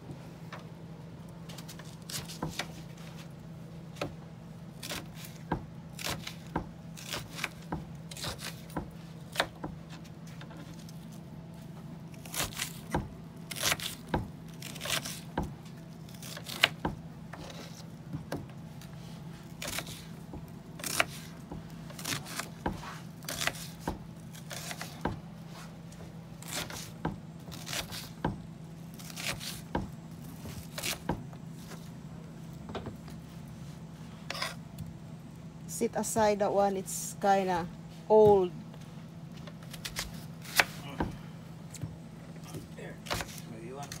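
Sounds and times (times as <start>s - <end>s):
steady low hum: 0.0s - 44.0s
knife cutting on plastic board: 19.5s - 20.2s, 20.8s - 25.7s, 26.4s - 28.4s, 34.3s - 34.6s.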